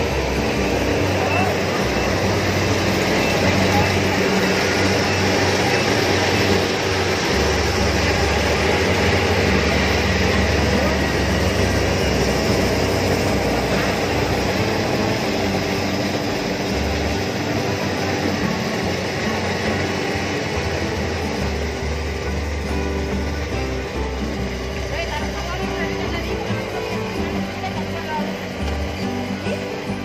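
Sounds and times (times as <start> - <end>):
combine harvester drone: 0.0 - 30.0.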